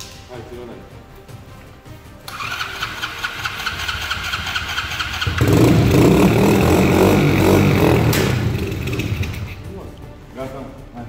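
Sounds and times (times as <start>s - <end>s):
electric starter cranking engine: 2.3s - 9.6s
engine running rough: 3.2s - 9.6s.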